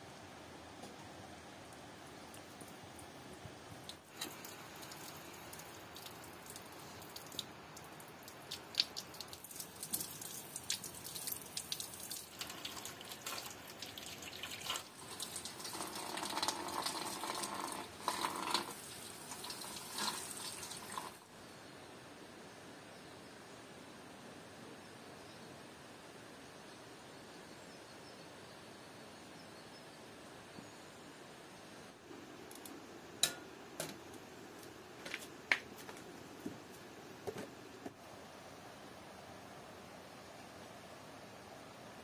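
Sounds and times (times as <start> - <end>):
water drips: 1.7 - 21.2
tap water running and splashing: 3.8 - 21.2.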